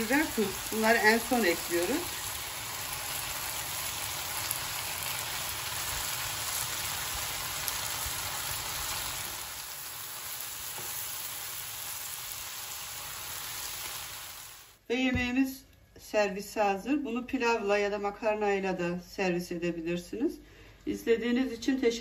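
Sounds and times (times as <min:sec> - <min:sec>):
food sizzling in frying pan: 0:00.0 - 0:14.8.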